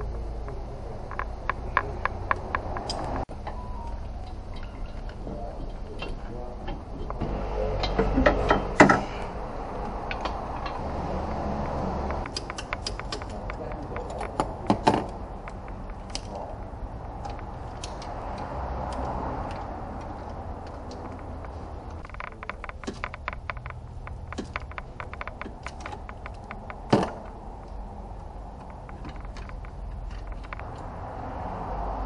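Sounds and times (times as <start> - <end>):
metal tools clanking and rattling: 4.2 - 10.9.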